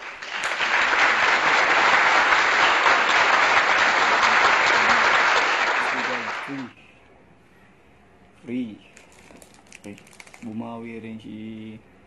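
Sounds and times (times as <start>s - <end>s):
crowd applause: 0.0s - 6.7s.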